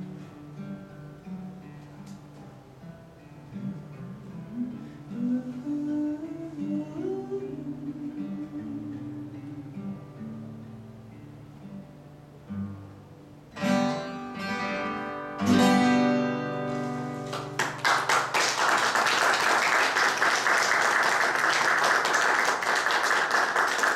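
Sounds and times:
acoustic guitar playing: 0:00.0 - 0:18.4
audience applause: 0:17.3 - 0:23.9.

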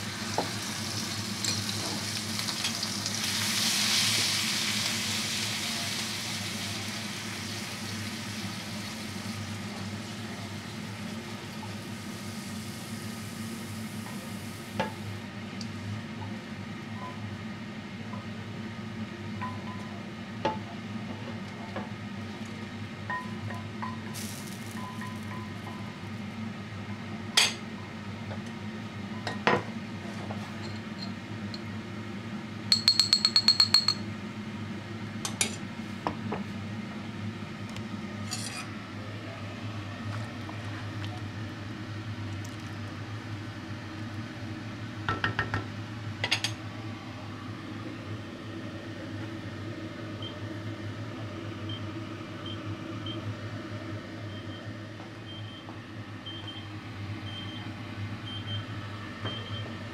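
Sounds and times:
cookware clinking and knocking: 0:32.7 - 0:34.0.

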